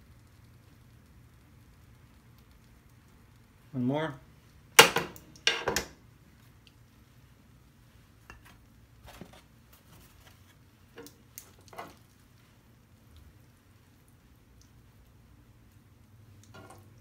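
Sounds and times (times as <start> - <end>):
tongs clacking on griddle: 16.4 - 17.0.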